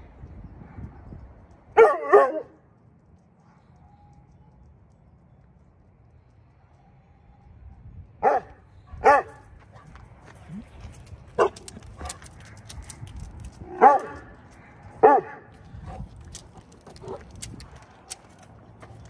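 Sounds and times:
dog barking: 1.8 - 2.6, 8.2 - 9.9, 11.4 - 12.2, 13.8 - 14.4, 15.0 - 15.5.

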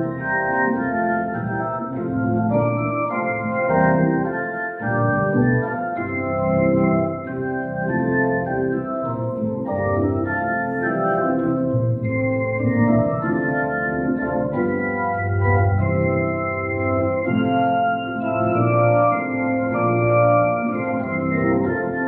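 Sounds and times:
organ playing sustained chords: 0.0 - 22.0.

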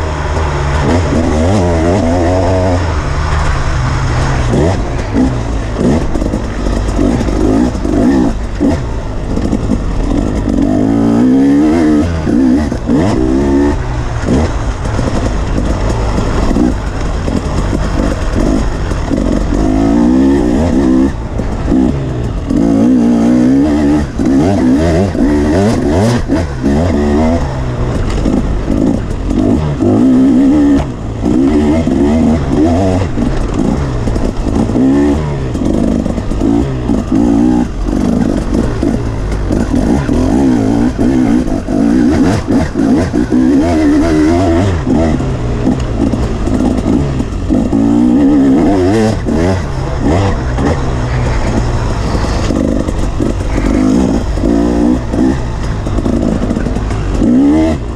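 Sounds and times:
dirt bike engine revving: 0.0 - 57.9.

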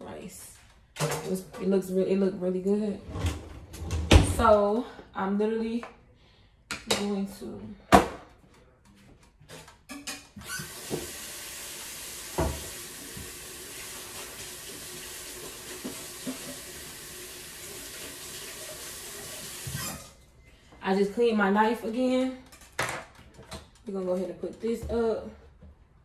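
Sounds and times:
kitchen tap running: 10.4 - 20.2.

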